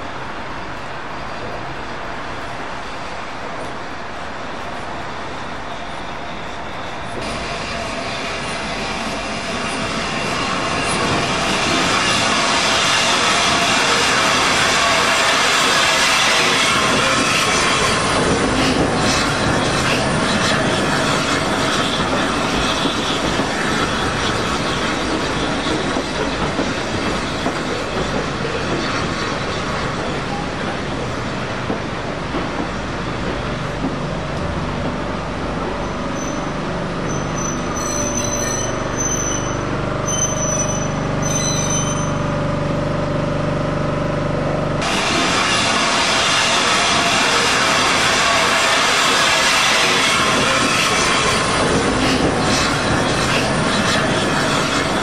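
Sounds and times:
train rumbling and rattling on rails: 0:00.0 - 0:55.0
high wheel squeal: 0:05.6 - 0:30.8, 0:35.7 - 0:42.5, 0:44.8 - 0:55.0.

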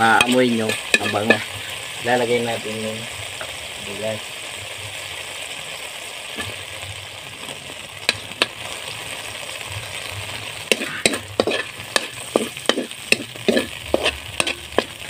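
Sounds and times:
spatula scraping a pan: 0:00.0 - 0:01.9, 0:10.7 - 0:15.0
onion and garlic sizzling in oil: 0:00.0 - 0:15.0.

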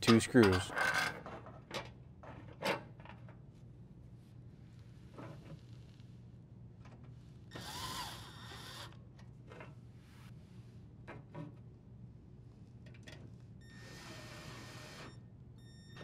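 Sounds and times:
cordless drill whining: 0:07.5 - 0:08.9.

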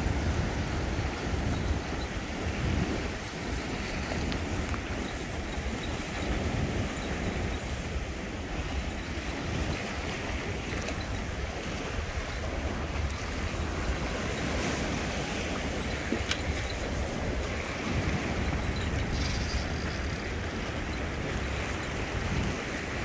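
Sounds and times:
waves washing at shore: 0:00.0 - 0:23.0
wind rumbling on microphone: 0:00.0 - 0:23.0.

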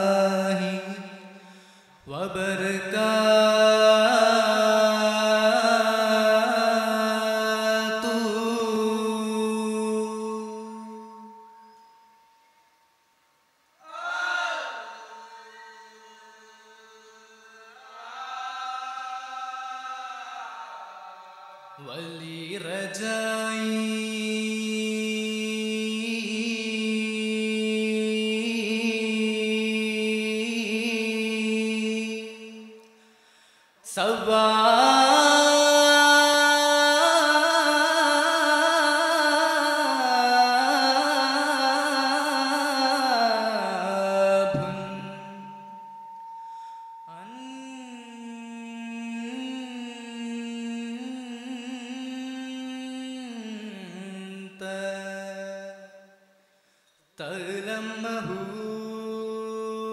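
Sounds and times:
person chanting unaccompanied: 0:00.0 - 0:01.4, 0:02.0 - 0:11.4, 0:13.8 - 0:32.8, 0:33.9 - 0:45.8, 0:47.1 - 0:56.1, 0:57.2 - 0:59.9
voices chanting in unison: 0:13.8 - 0:21.9.

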